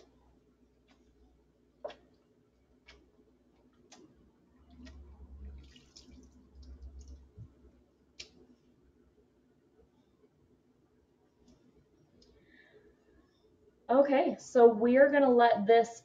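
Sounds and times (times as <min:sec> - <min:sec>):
water stirring in a sink: 0:03.6 - 0:07.6.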